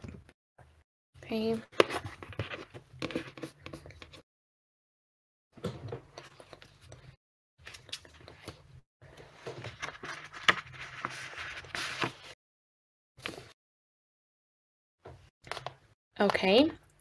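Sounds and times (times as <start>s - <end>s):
rustling and scraping at a desk: 1.8s - 4.2s, 5.8s - 12.4s.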